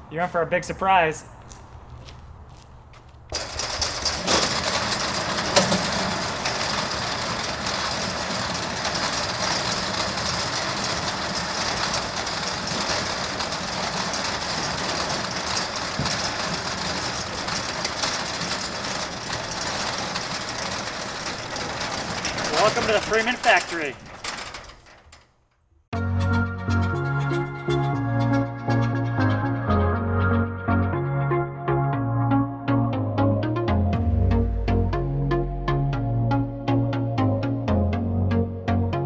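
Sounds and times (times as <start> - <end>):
metal door clank: 3.3 - 25.4
roll-up door motor: 3.3 - 25.8.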